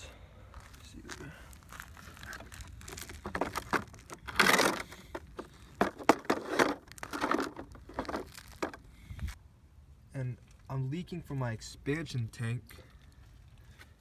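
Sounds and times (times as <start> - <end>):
rustling scrape: 1.5 - 9.4.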